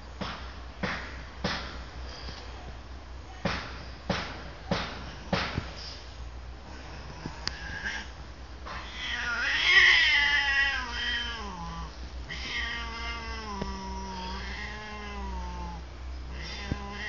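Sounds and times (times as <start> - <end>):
cat yowling: 8.8 - 17.0.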